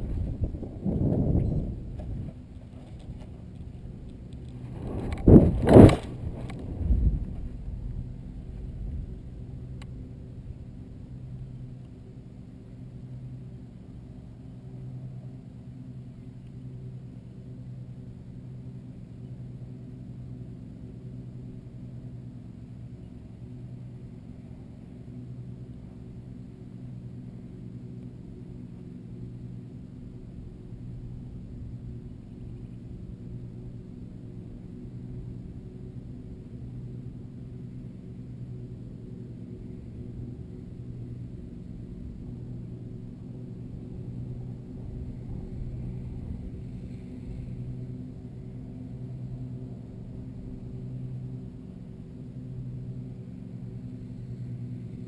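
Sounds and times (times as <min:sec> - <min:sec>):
wind buffeting microphone: 0:00.0 - 0:09.6
wind rumbling on microphone: 0:00.0 - 0:11.0, 0:39.4 - 0:51.1
steady low hum: 0:00.0 - 0:55.0.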